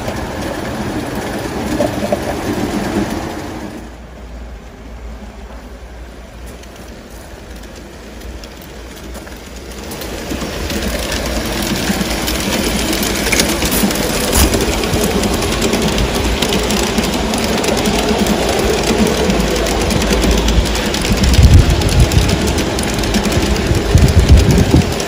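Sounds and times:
model train wheels clicking on rails: 0.0s - 25.0s
motor and gear noise: 8.2s - 25.0s.

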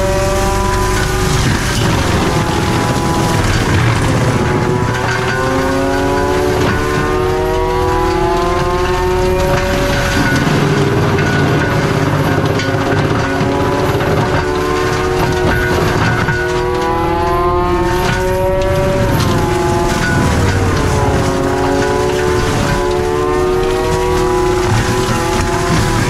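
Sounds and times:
diesel engine running: 0.0s - 26.0s
high mechanical whine: 0.0s - 26.0s
spinning mulcher drum: 0.0s - 26.0s.

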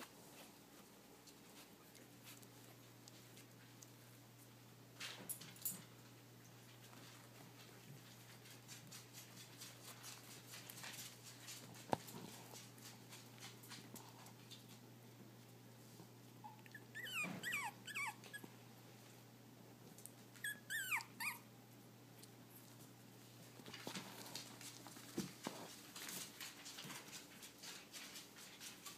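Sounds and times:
paws scuffling on bedding: 0.0s - 4.6s, 6.1s - 14.8s, 22.6s - 28.9s
puppy whimpering: 16.4s - 18.5s, 20.4s - 21.5s.

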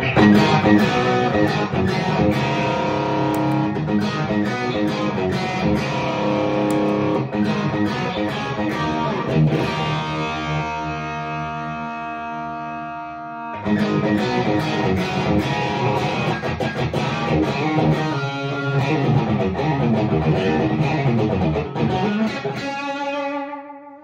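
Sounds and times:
overdriven electric guitar: 0.0s - 24.0s.

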